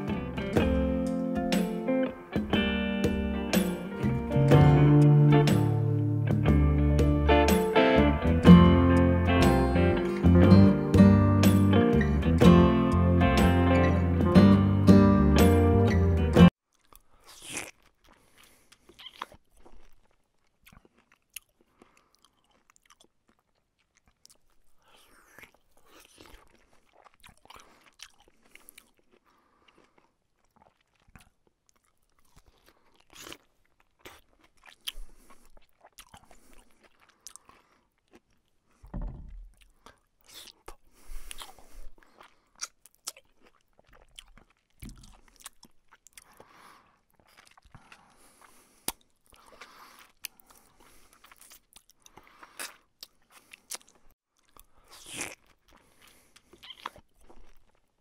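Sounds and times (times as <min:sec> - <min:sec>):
chewing and crunching food: 0:16.5 - 0:58.0
dull thump: 0:38.9 - 0:39.5.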